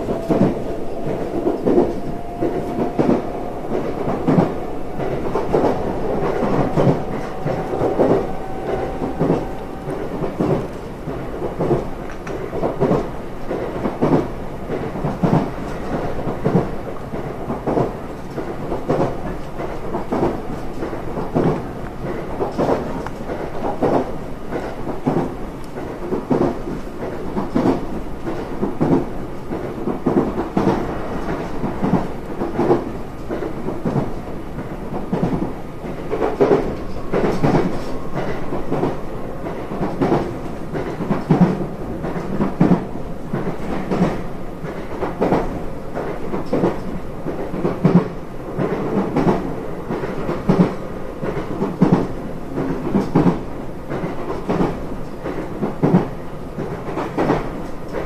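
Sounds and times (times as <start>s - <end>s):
train running gear rumble: 0.0s - 58.0s.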